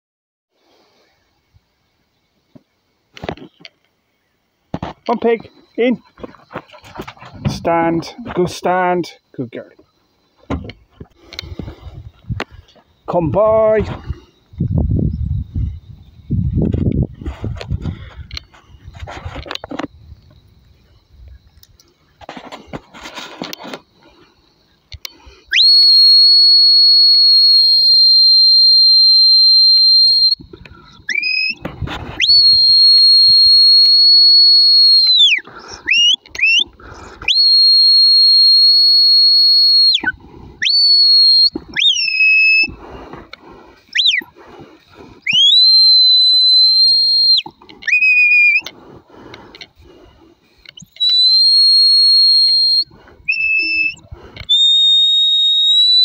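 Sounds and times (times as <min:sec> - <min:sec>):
herding whistle notes: 0:25.5 - 0:30.4, 0:31.1 - 0:31.6, 0:32.2 - 0:42.8, 0:43.9 - 0:44.3, 0:45.2 - 0:48.7, 0:50.8 - 0:56.0.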